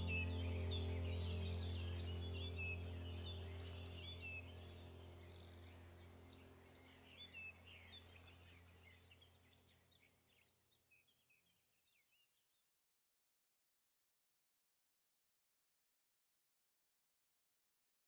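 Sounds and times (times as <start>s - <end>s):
low steady hum: 0.0s - 10.5s
birds chirping: 0.0s - 12.0s.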